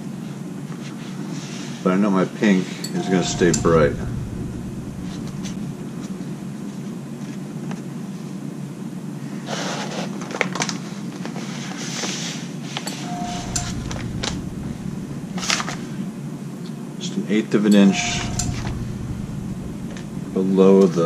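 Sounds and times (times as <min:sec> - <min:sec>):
fume extraction fan hum: 0:03.0 - 0:06.9, 0:13.0 - 0:16.1, 0:17.9 - 0:21.0.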